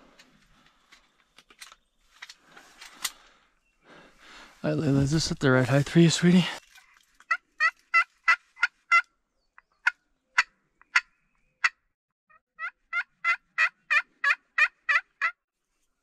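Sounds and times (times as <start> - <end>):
turkey call yelps: 7.3 - 9.1, 12.6 - 15.4.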